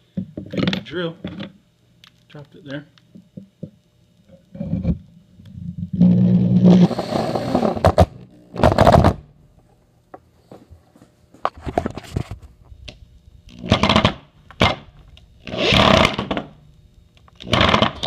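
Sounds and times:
power drill driving screw into wood: 0:06.6 - 0:09.2, 0:13.6 - 0:14.8, 0:15.4 - 0:16.5, 0:17.4 - 0:18.0.

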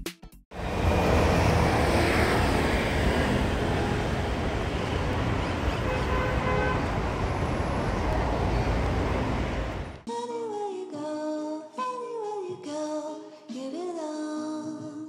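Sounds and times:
traffic from passing cars: 0:00.6 - 0:10.0.

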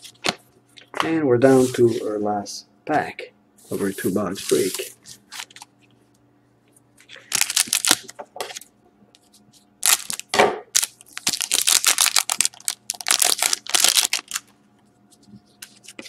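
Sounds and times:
foil wrapper crinkling: 0:07.2 - 0:08.2, 0:09.8 - 0:14.5.

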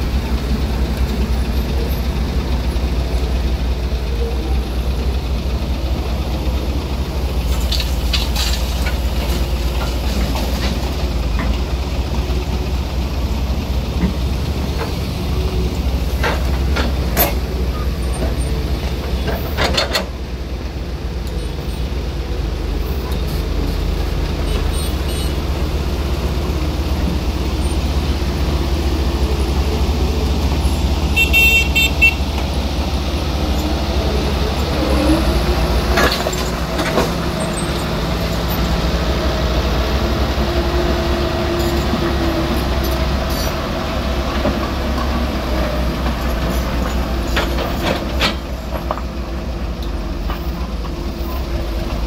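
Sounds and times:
excavator diesel engine: 0:00.0 - 0:52.0
knocks of soil and asphalt: 0:07.4 - 0:11.7, 0:35.8 - 0:38.8.

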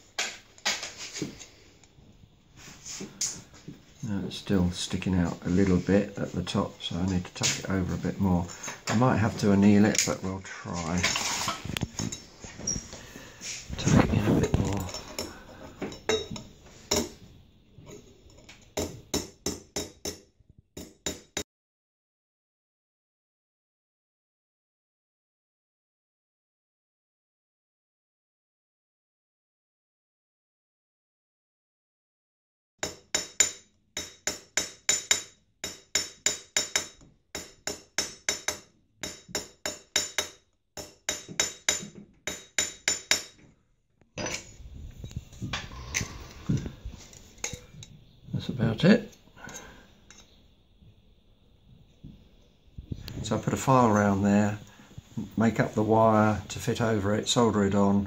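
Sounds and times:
hammer striking metal vase: 0:15.9 - 0:17.2, 0:18.8 - 0:20.2, 0:20.8 - 0:21.4, 0:32.8 - 0:43.4.

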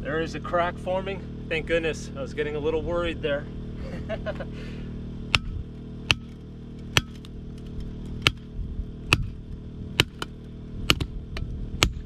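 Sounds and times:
steady low hum: 0:00.0 - 0:12.0
sledgehammer striking steel wedge: 0:05.3 - 0:07.3, 0:08.2 - 0:08.5, 0:09.1 - 0:09.4, 0:10.0 - 0:11.2, 0:11.8 - 0:12.0.

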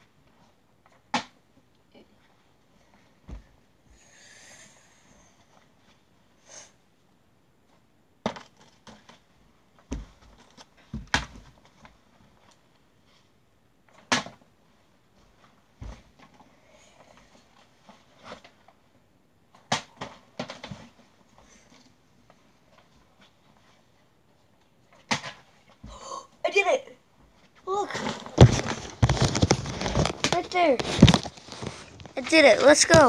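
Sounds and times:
handling noise: 0:28.0 - 0:33.0.

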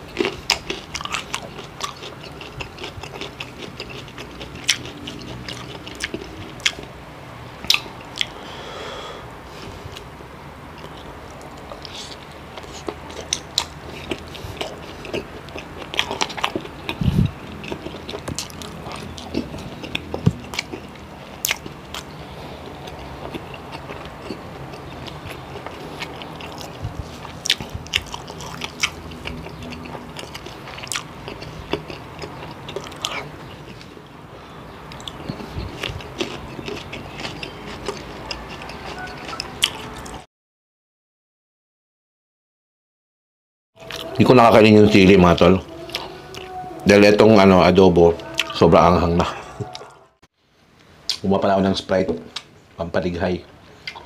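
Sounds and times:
wet smacking chewing: 0:00.1 - 0:06.9, 0:10.8 - 0:34.0, 0:34.9 - 0:40.2.

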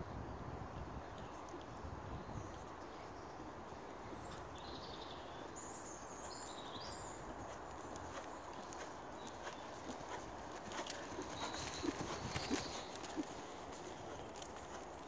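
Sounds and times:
outdoor background noise: 0:00.0 - 0:15.0
muffled horse hoofbeats: 0:07.1 - 0:15.0
bird chirps: 0:10.7 - 0:14.2.

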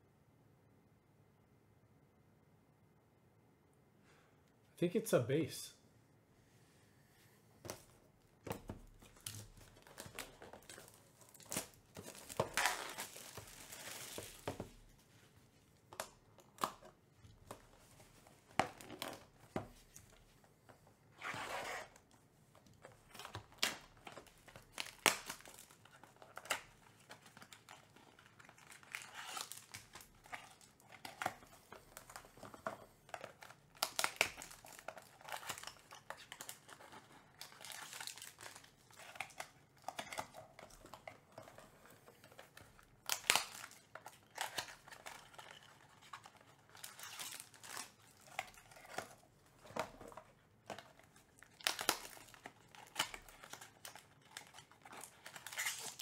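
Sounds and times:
crinkling and rustling packaging: 0:07.6 - 0:56.0
plastic wrapping and cardboard tearing: 0:08.5 - 0:14.9, 0:22.8 - 0:41.5, 0:42.1 - 0:56.0.

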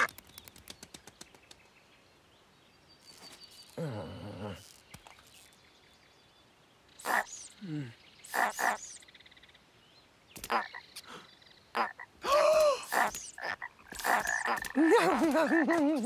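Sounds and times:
cartoon frogs croaking: 0:03.7 - 0:05.5, 0:07.0 - 0:09.0, 0:10.4 - 0:11.1, 0:11.7 - 0:15.7.

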